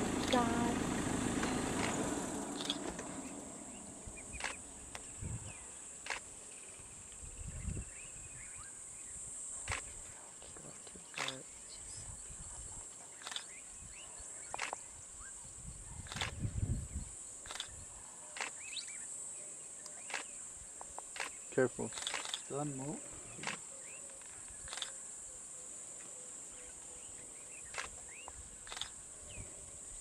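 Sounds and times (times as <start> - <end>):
vehicle engine idling: 0.0 - 6.2
insects chirring: 0.0 - 30.0.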